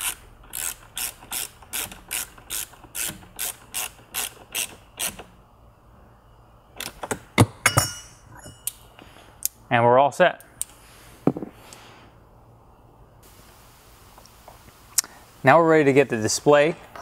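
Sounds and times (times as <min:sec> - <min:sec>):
ratcheting screwdriver clicking: 0:00.0 - 0:05.3.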